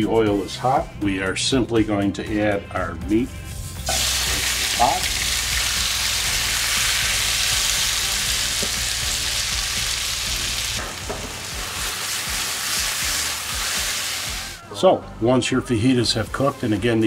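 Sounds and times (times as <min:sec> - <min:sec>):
food sizzling in hot oil: 0:03.6 - 0:14.6
spatula knocking against pan: 0:10.8 - 0:11.4.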